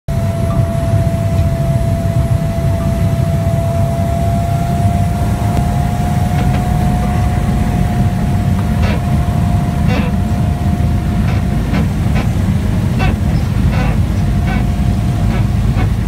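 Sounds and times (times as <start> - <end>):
plane engine and propeller drone: 0.1 - 16.0
steady engine whine: 0.1 - 16.0.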